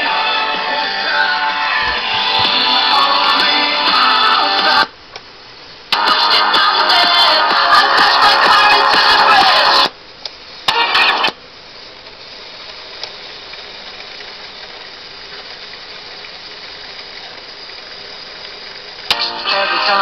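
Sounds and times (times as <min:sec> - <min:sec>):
radio music: 0:00.0 - 0:05.0, 0:05.9 - 0:10.0, 0:10.6 - 0:11.4, 0:19.1 - 0:20.0
radio tuner whirring with hiss: 0:00.0 - 0:20.0.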